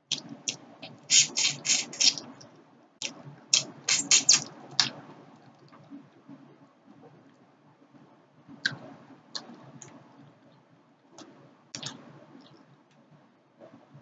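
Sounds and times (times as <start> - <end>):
mouth clicks and smacks chewing: 0.0 - 5.9, 11.8 - 12.6.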